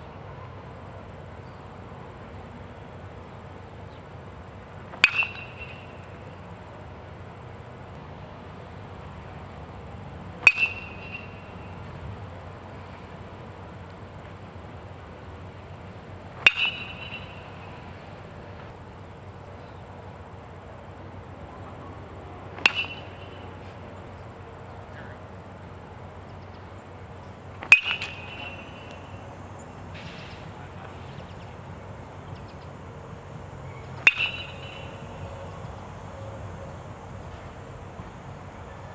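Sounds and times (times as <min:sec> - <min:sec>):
metal bat hitting ball: 0:04.9 - 0:06.0, 0:10.4 - 0:11.6, 0:16.4 - 0:17.8, 0:22.6 - 0:23.5, 0:27.6 - 0:29.2, 0:34.0 - 0:35.0.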